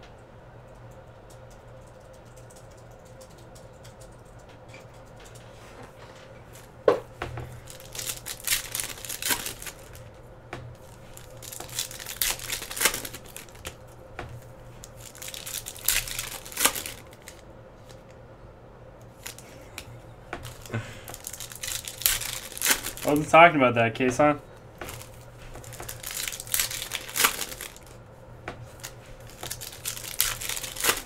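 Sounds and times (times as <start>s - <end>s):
wrappers tearing and crinkling: 7.5s - 10.1s, 10.8s - 13.8s, 14.8s - 18.0s, 19.1s - 23.4s, 24.8s - 28.0s, 28.7s - 31.0s.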